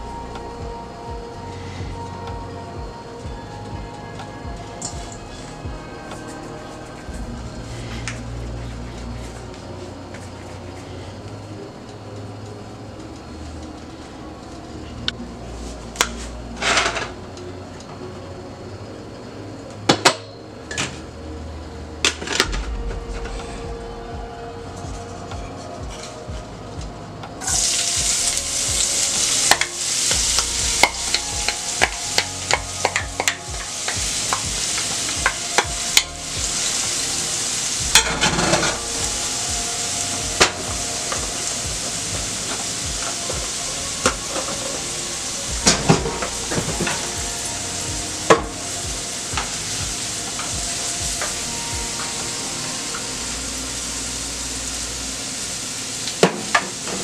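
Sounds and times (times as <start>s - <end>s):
seasonings sizzling in hot oil: 27.4s - 57.0s.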